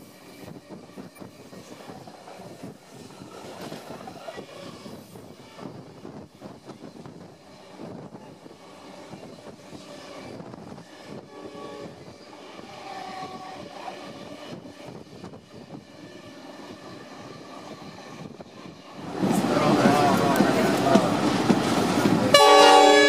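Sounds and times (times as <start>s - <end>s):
train rolling on tracks: 0.0s - 23.0s
short pitched train notes: 22.2s - 23.0s.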